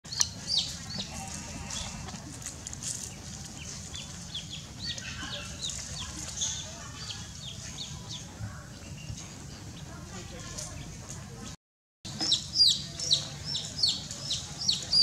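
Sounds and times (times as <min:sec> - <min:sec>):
baby chick peeping: 0:00.1 - 0:02.0, 0:03.6 - 0:09.2, 0:12.1 - 0:15.0.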